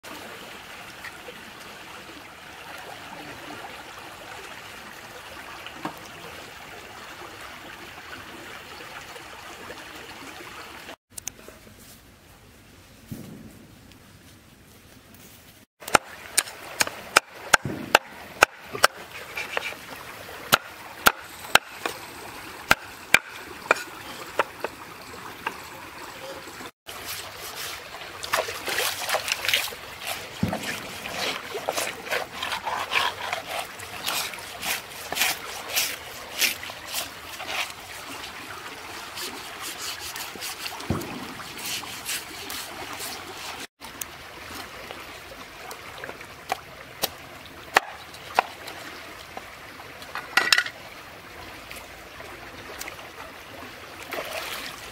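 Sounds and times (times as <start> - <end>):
water trickling and splashing: 0.0 - 11.0, 15.7 - 54.9
knife scraping fish scales: 18.9 - 19.8, 29.2 - 37.8, 39.2 - 40.8.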